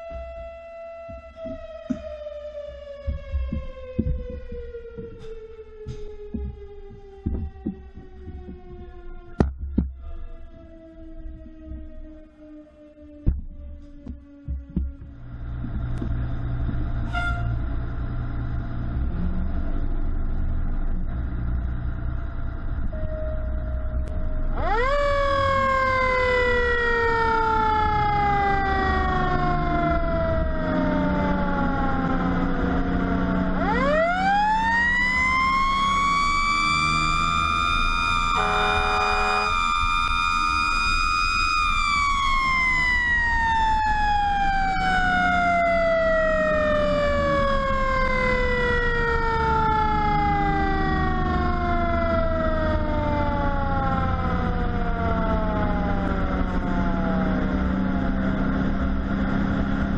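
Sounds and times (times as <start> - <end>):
diesel engine rumble: 0.0 - 59.9
fire truck siren: 0.0 - 59.9
horn blast: 17.0 - 17.6, 38.1 - 39.9.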